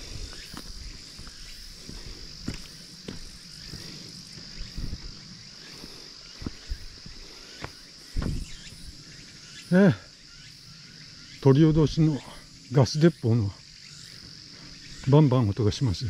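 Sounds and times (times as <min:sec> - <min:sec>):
footsteps on road: 0:00.0 - 0:08.5
high-pitched insect chorus: 0:00.0 - 0:16.0
dull thud: 0:08.2 - 0:08.5.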